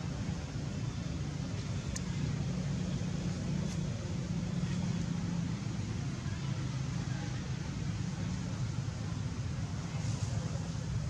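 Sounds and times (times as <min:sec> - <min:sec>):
low background rumble: 0:00.0 - 0:11.0
faint clicks: 0:01.8 - 0:02.2.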